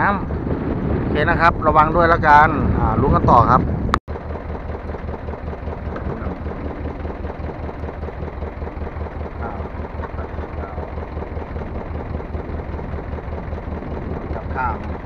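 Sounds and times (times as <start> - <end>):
boat engine idling: 4.1 - 15.0.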